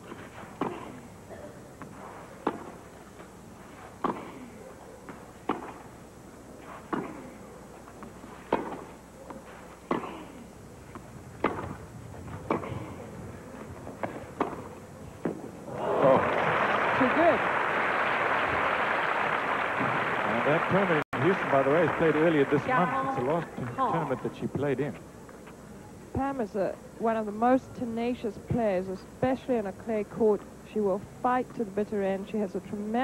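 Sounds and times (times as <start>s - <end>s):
tennis ball hit by rackets: 1.8s - 2.8s, 4.0s - 4.5s, 5.1s - 5.9s, 6.6s - 7.4s, 8.0s - 10.3s, 11.4s - 13.0s, 13.9s - 15.5s.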